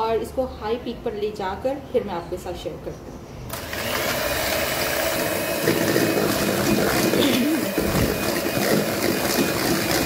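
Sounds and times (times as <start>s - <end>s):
electric hand mixer whipping: 3.5s - 10.0s.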